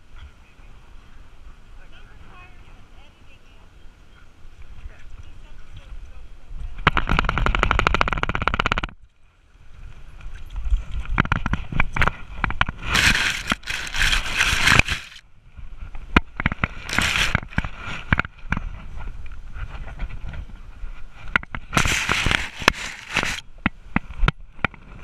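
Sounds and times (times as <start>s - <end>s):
rustling and scraping on camera: 4.9s - 9.0s, 10.0s - 25.0s
bursts of hiss: 21.7s - 23.4s.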